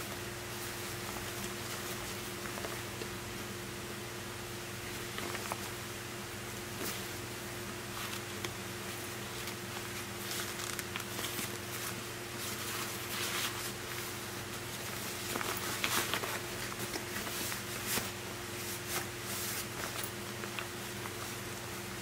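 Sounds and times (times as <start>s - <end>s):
low electrical hum: 0.0s - 22.0s
packaging and backpack rustling: 8.0s - 21.5s.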